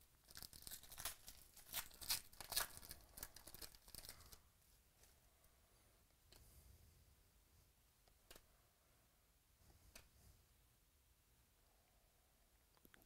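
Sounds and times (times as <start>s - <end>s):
foil wrapper tearing and crinkling: 0.2s - 4.3s.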